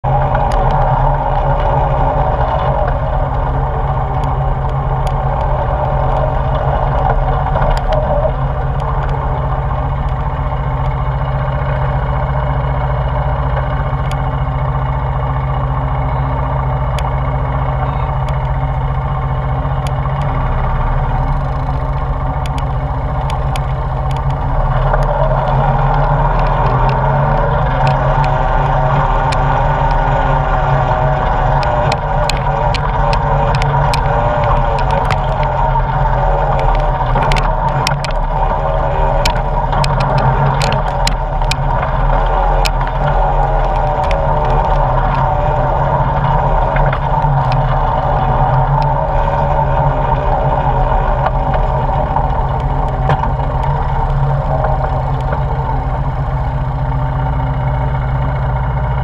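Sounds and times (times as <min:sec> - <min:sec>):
quad engine running: 0:00.0 - 0:59.0
sharp ticks: 0:15.6 - 0:59.0.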